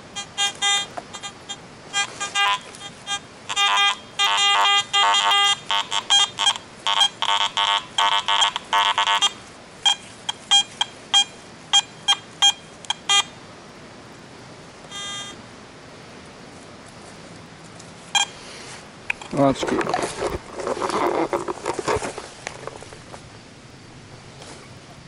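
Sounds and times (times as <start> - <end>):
metal detector beeps: 0.1 - 13.3, 14.9 - 15.4, 18.1 - 18.4.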